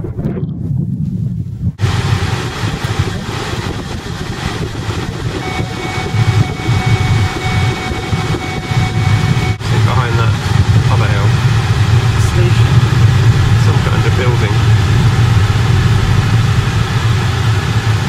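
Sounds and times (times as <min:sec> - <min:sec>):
car engine running: 0:01.8 - 0:18.0
tyres rumbling on rough surface: 0:01.8 - 0:18.0
thin high tone: 0:05.4 - 0:09.6.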